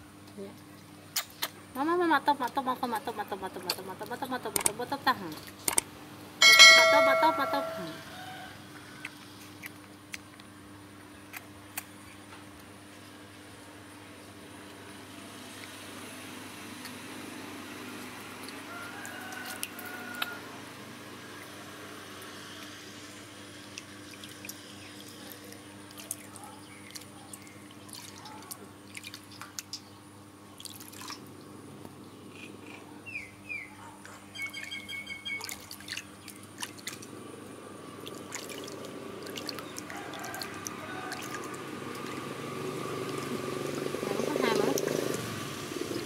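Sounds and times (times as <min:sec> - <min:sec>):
water splashing in steel basin: 0:23.7 - 0:29.8, 0:30.6 - 0:31.2, 0:34.6 - 0:37.1, 0:38.0 - 0:42.3.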